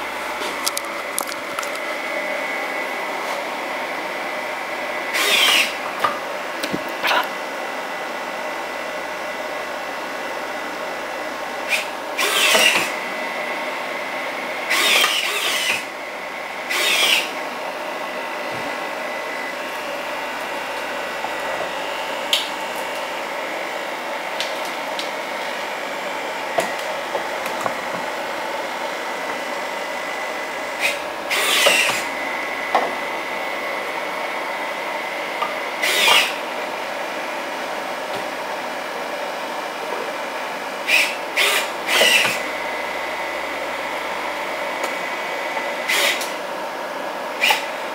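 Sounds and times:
servo motors whirring: 0:00.0 - 0:02.0, 0:05.2 - 0:05.8, 0:11.7 - 0:12.9, 0:14.7 - 0:15.8, 0:16.7 - 0:17.3, 0:30.7 - 0:32.7, 0:35.8 - 0:36.4, 0:40.9 - 0:44.4
mechanical hum: 0:00.0 - 0:47.9.

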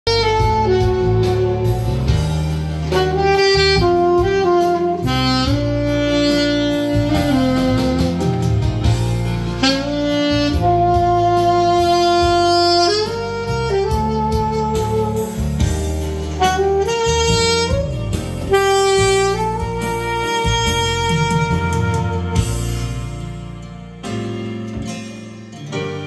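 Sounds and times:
alto saxophone ballad melody: 0:00.0 - 0:26.0.

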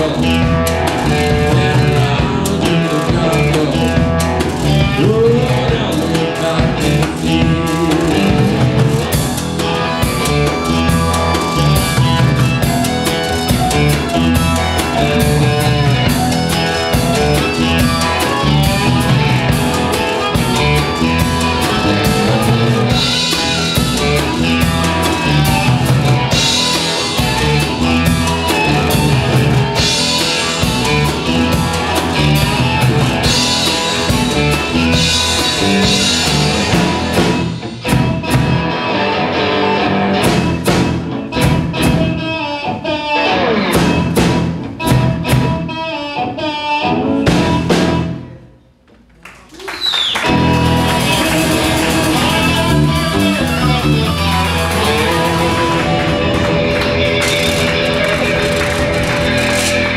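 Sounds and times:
blues-rock band playing: 0:00.0 - 0:48.5, 0:49.8 - 0:59.9
amplified harmonica: 0:07.7 - 0:37.3, 0:44.7 - 0:48.3, 0:50.1 - 0:59.9.

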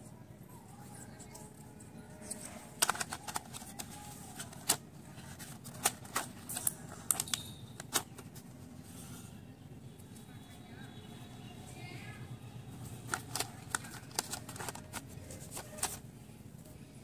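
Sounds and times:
plastic sharpener clicking in tray: 0:02.8 - 0:04.8.

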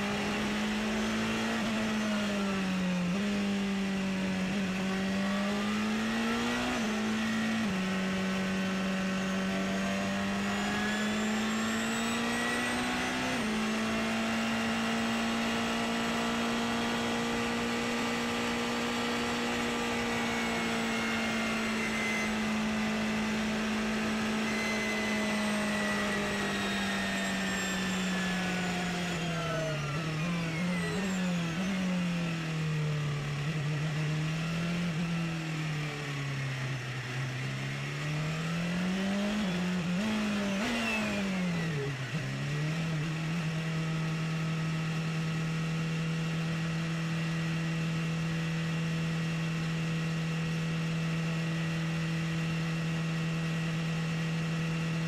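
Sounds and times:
race car engine accelerating: 0:00.0 - 0:35.5.

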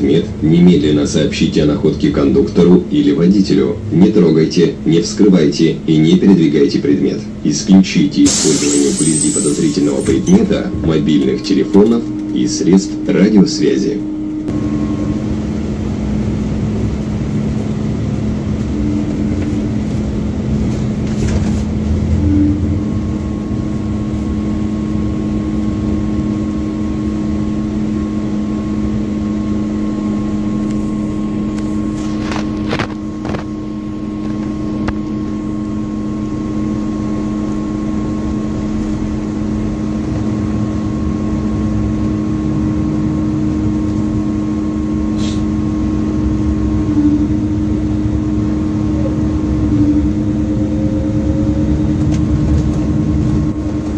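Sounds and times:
bus engine droning: 0:00.0 - 0:53.9
faint high whine: 0:08.2 - 0:15.4.

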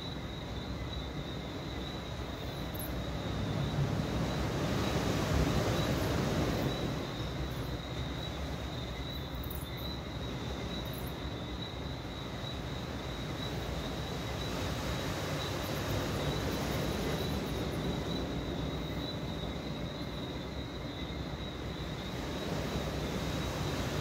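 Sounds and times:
low wash of noise: 0:02.2 - 0:08.7, 0:12.8 - 0:24.0.

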